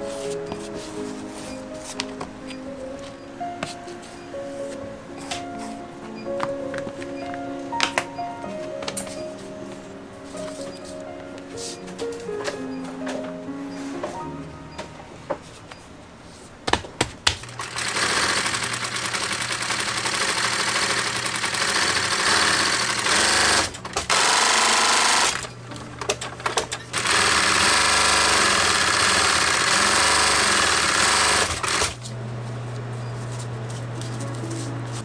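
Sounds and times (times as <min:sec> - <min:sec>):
sewing machine stitching: 0:17.4 - 0:32.0.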